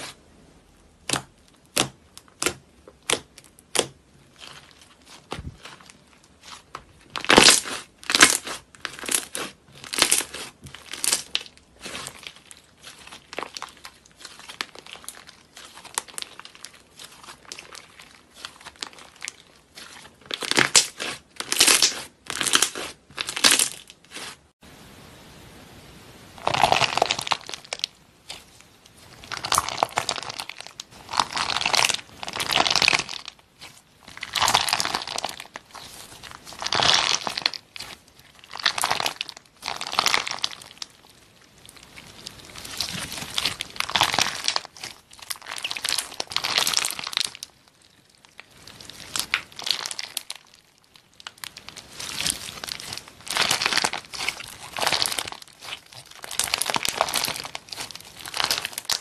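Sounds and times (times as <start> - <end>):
squishy stress ball squeezed: 51.0 - 59.0.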